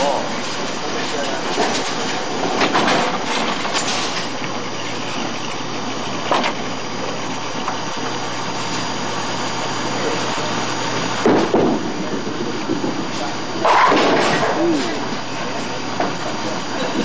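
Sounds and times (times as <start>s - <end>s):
machinery running: 0.0s - 17.0s
bowling balls rolling: 11.1s - 15.1s.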